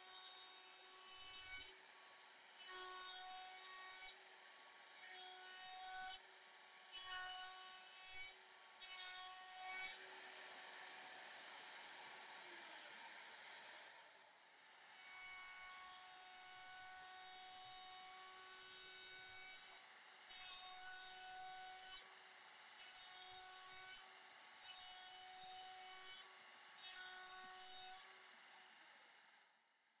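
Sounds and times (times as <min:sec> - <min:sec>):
router motor whine: 0:00.0 - 0:14.2.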